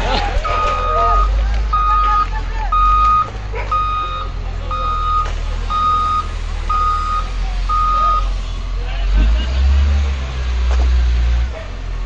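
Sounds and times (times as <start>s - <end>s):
diesel engine rumble: 0.0s - 12.0s
reversing alarm beeping: 0.4s - 8.4s.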